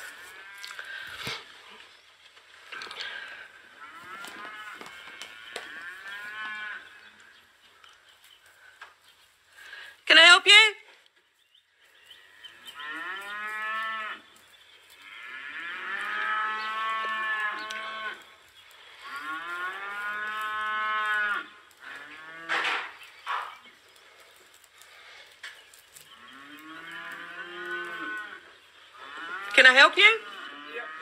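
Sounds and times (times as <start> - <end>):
cattle mooing: 3.1 - 7.1, 12.2 - 14.2, 15.0 - 18.3, 19.0 - 22.9, 26.1 - 31.0.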